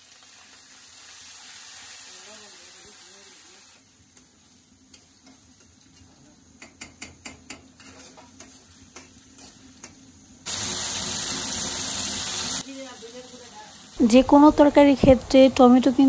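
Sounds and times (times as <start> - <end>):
low frying sizzle: 0.0 - 16.0
spatula clicking against pan: 6.6 - 7.7
metal spatula scraping pan: 7.5 - 8.7
loud hiss: 10.5 - 12.7.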